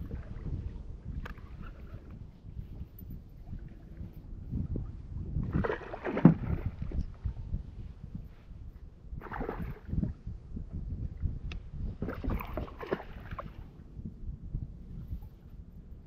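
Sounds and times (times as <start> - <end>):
low wind rumble: 0.0 - 16.0
waves lapping against kayak hull: 5.4 - 7.3, 9.2 - 10.1, 12.0 - 13.7.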